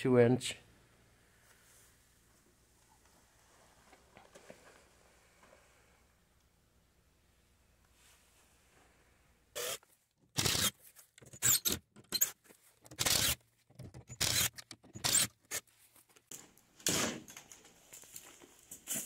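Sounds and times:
cordless drill bursts: 0:09.6 - 0:09.8, 0:10.4 - 0:10.7, 0:13.0 - 0:13.4, 0:14.2 - 0:15.3.

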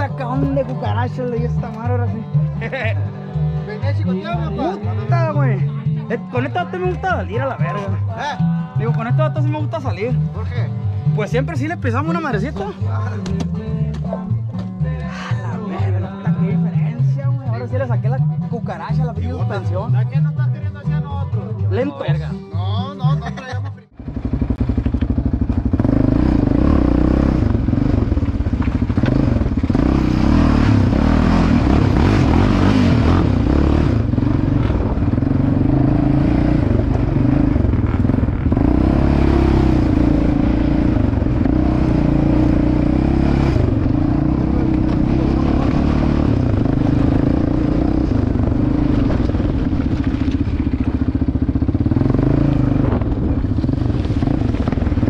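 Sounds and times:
atv engine running: 0:23.2 - 0:55.0.

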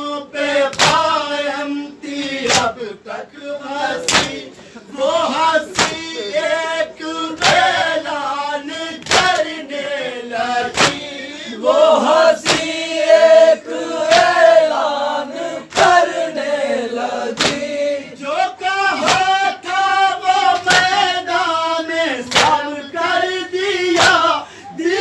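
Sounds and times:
men chanting in unison: 0:00.0 - 0:25.0
chest-beating slaps: 0:00.7 - 0:01.2, 0:02.2 - 0:02.8, 0:04.0 - 0:04.7, 0:05.6 - 0:06.2, 0:07.3 - 0:07.9, 0:09.0 - 0:09.6, 0:10.6 - 0:11.2, 0:12.4 - 0:12.8, 0:14.1 - 0:14.4, 0:15.7 - 0:16.1, 0:17.3 - 0:17.8, 0:19.0 - 0:19.5, 0:20.5 - 0:21.1, 0:22.3 - 0:22.7, 0:24.0 - 0:24.3.

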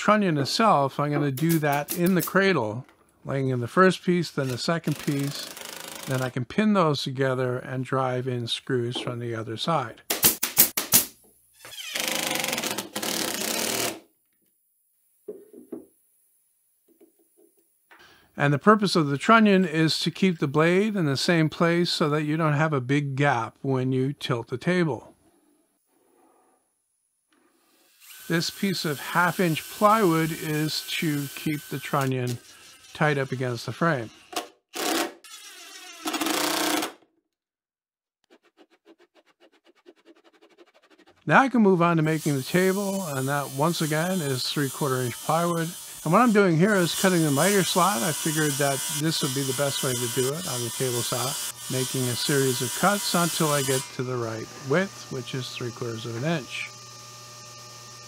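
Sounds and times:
cordless drill driving screw: 0:04.4 - 0:06.2
pin nailer firing: 0:10.1 - 0:11.1, 0:12.0 - 0:14.0, 0:34.3 - 0:35.2, 0:36.0 - 0:37.0.

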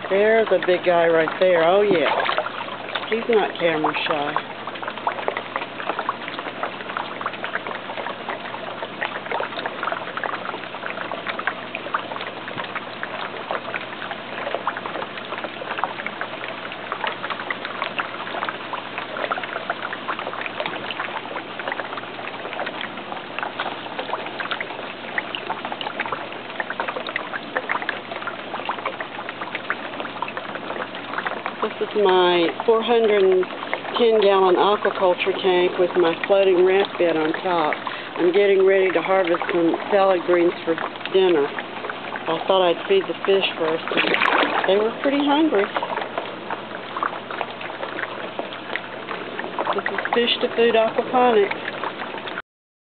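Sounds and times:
fish splashing at surface: 0:00.0 - 0:52.4
water splashing and trickling: 0:00.0 - 0:52.4.

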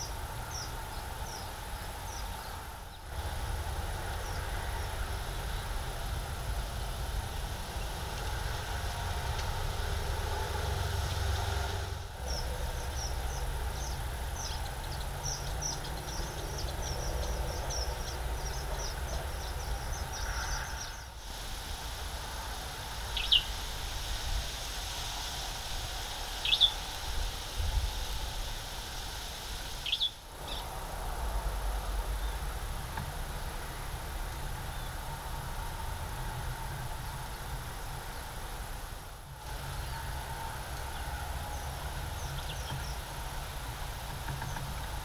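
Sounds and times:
steady low rumble: 0:00.0 - 0:44.1
bird chirping: 0:12.2 - 0:21.1, 0:23.2 - 0:23.5, 0:26.4 - 0:26.8, 0:29.8 - 0:30.7.

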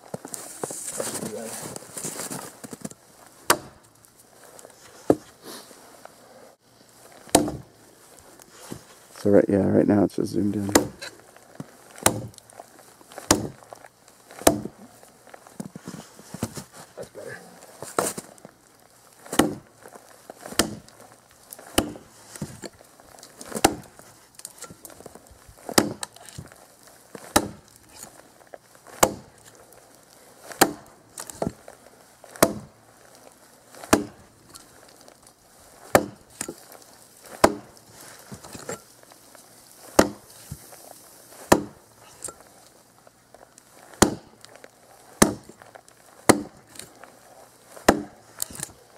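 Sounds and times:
tomahawk chopping into log: 0:03.4 - 0:03.8, 0:07.2 - 0:07.7, 0:10.6 - 0:11.1, 0:11.9 - 0:12.4, 0:13.1 - 0:13.7, 0:14.3 - 0:14.8, 0:19.2 - 0:19.7, 0:20.4 - 0:21.0, 0:21.6 - 0:22.7, 0:23.4 - 0:24.8, 0:25.7 - 0:26.5, 0:27.2 - 0:28.1, 0:28.9 - 0:29.3, 0:30.5 - 0:31.6, 0:32.3 - 0:32.7, 0:33.7 - 0:34.6, 0:35.8 - 0:38.8, 0:39.9 - 0:40.6, 0:41.4 - 0:42.4, 0:43.9 - 0:44.4, 0:45.2 - 0:45.6, 0:46.2 - 0:46.9, 0:47.7 - 0:48.8.

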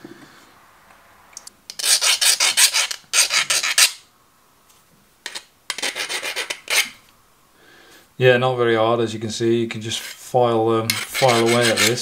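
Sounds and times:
file rasping on metal: 0:01.7 - 0:04.0, 0:05.3 - 0:07.0, 0:09.9 - 0:10.2, 0:10.9 - 0:12.0.

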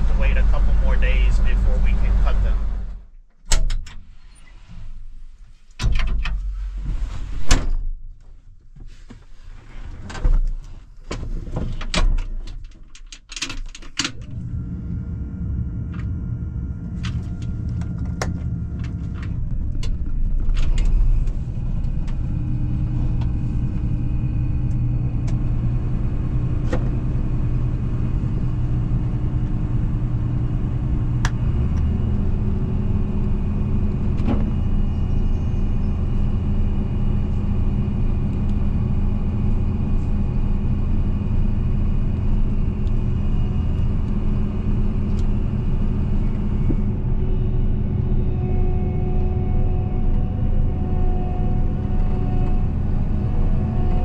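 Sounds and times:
combine harvester drone: 0:00.0 - 0:03.1, 0:14.0 - 0:54.0.

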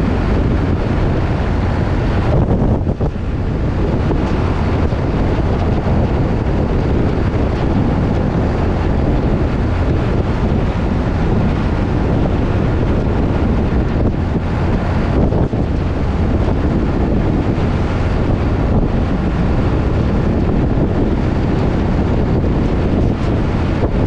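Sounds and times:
truck rumbling on highway: 0:00.0 - 0:24.0
wind buffeting microphone: 0:00.0 - 0:24.0.

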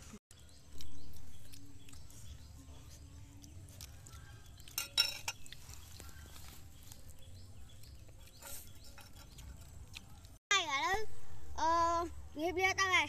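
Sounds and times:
utensils clinking on ceramic bowl: 0:04.7 - 0:05.6.

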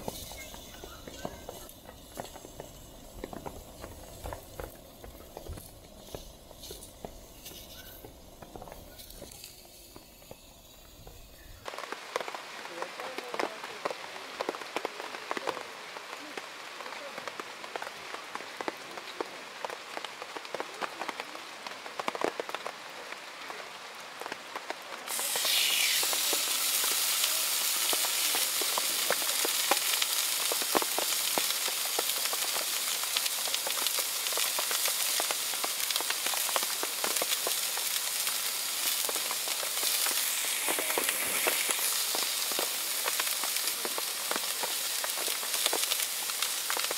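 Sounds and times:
steak sizzling on a grill: 0:00.0 - 0:13.6, 0:25.1 - 0:46.9
rain pattering: 0:00.0 - 0:46.9.

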